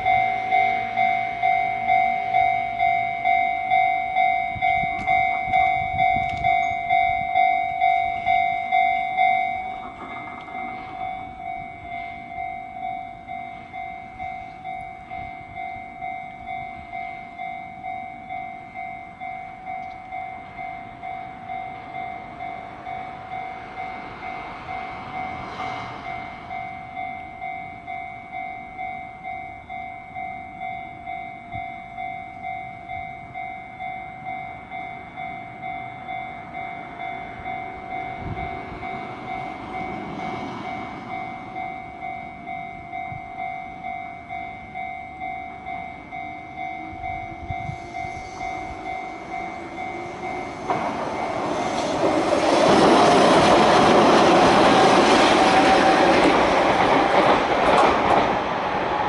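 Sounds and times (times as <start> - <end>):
railroad crossing warning bell: 0.0 - 59.0
rumbling rush of noise: 47.0 - 59.0.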